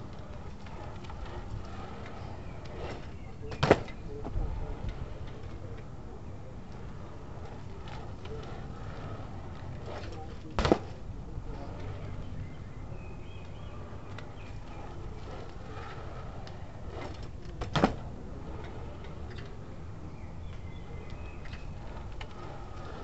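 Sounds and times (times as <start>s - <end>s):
outdoor background noise: 0.0s - 23.0s
bike landing hard on asphalt: 2.2s - 4.4s, 7.9s - 11.1s, 14.4s - 18.2s.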